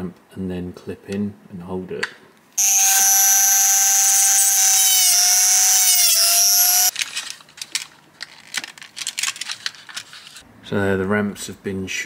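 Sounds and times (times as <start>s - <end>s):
rotary tool whining while cutting: 2.6s - 6.9s.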